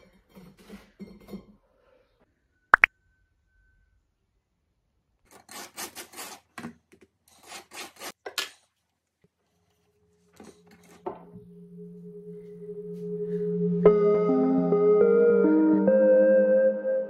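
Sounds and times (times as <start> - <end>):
soft ambient music with drone: 10.2 - 17.0.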